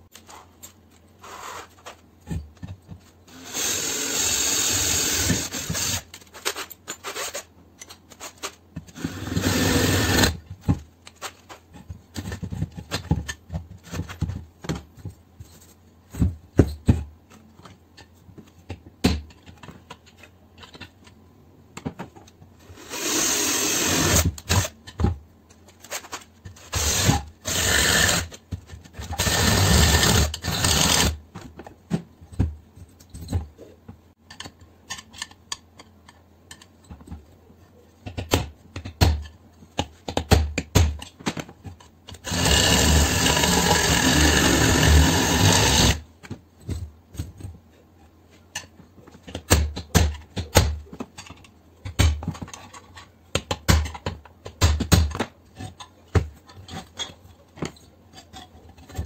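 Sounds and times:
cordless drill running: 9.1s - 10.4s, 22.9s - 24.3s, 26.8s - 28.3s, 29.2s - 31.1s, 42.2s - 46.0s
tool handling clicks and knocks: 10.4s - 22.6s, 31.2s - 42.2s, 46.1s - 59.0s.

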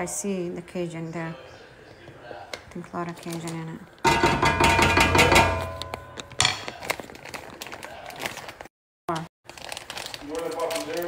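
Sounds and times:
ringing clank: 4.1s - 6.6s.

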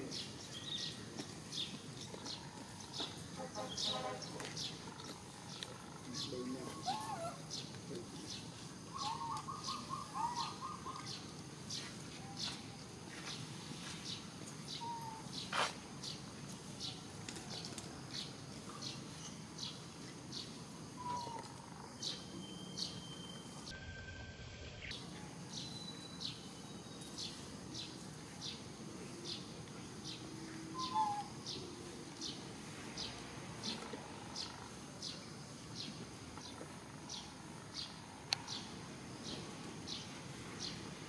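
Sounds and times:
small birds chirping: 0.0s - 23.7s, 24.8s - 40.9s
whistled bird calls: 8.9s - 11.1s, 21.0s - 23.5s, 30.8s - 31.3s.

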